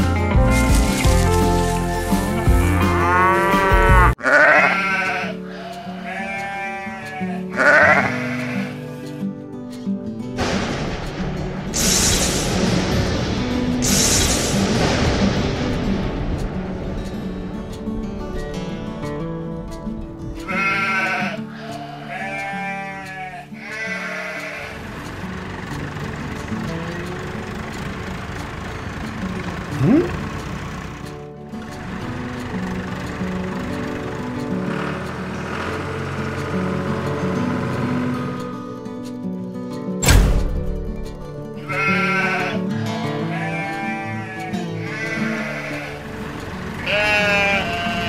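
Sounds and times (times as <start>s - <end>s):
music with heavy bass beat: 0.0s - 4.2s
background music: 0.0s - 48.0s
sheep bleating: 2.4s - 9.2s, 20.4s - 24.9s, 41.6s - 46.2s, 46.8s - 48.0s.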